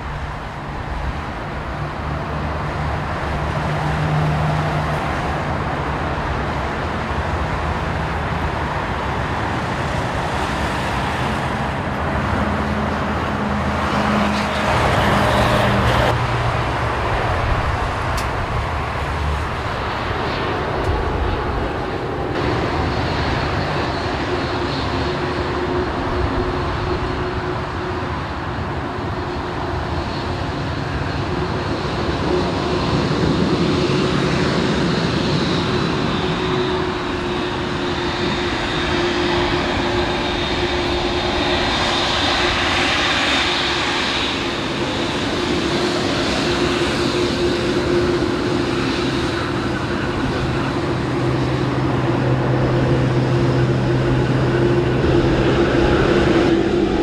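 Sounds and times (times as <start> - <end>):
jet engines humming: 0.0 - 57.0
low drone: 29.8 - 57.0
high whine: 31.2 - 57.0.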